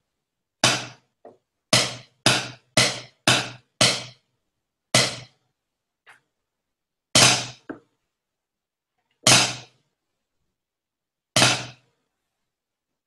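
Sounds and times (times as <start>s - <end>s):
drumsticks striking practice pad: 0.6s - 1.0s, 1.7s - 4.2s, 5.0s - 5.3s, 7.2s - 7.8s, 9.3s - 9.7s, 11.4s - 11.8s.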